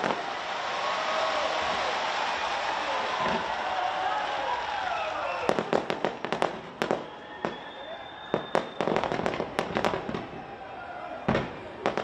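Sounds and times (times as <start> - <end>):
fireworks bangs and cracks: 0.0 - 0.6, 2.6 - 3.8, 5.3 - 10.6, 11.2 - 12.0
high firework whistle: 4.9 - 5.8, 6.8 - 10.2.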